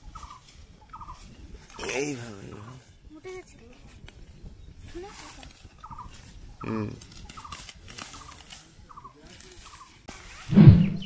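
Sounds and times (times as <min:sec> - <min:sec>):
poultry calls: 0:00.0 - 0:01.9, 0:05.8 - 0:10.0
plants rustling: 0:04.9 - 0:10.0.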